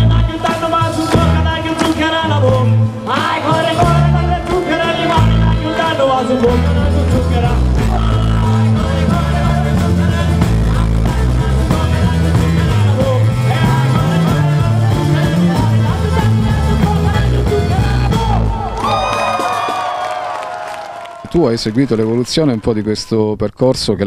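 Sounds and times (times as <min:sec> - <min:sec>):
man singing: 0:00.0 - 0:18.8
bass guitar: 0:00.0 - 0:19.6
electric guitars: 0:00.0 - 0:20.1
crowd shouting and whistling: 0:17.5 - 0:23.3.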